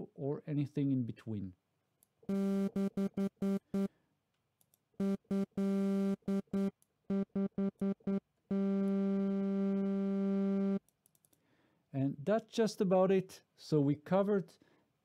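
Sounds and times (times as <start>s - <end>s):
low buzzy synth note: 5.0s - 10.8s.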